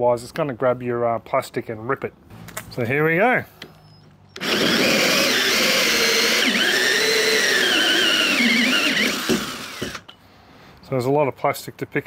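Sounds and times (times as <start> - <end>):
drill hole saw cutting plastic: 4.4 - 10.1.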